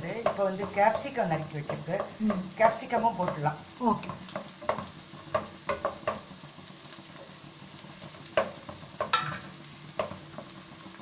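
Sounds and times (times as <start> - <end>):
vegetables sizzling in oil: 0.0 - 11.0
knocks against pan: 8.4 - 9.4.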